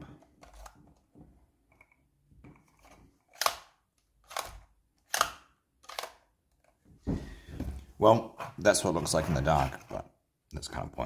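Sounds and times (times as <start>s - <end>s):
sharp plastic clicks: 3.3s - 6.7s.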